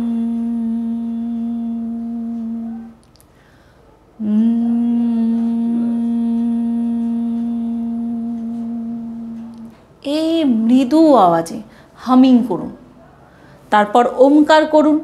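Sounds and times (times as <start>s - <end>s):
woman humming: 0.0s - 3.0s, 4.2s - 11.0s.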